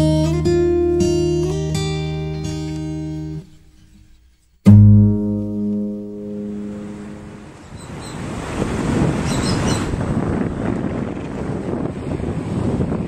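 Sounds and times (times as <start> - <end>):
guitar chord ringing: 0.0 - 4.0, 4.6 - 7.6
acoustic guitar plucked notes: 0.0 - 7.6.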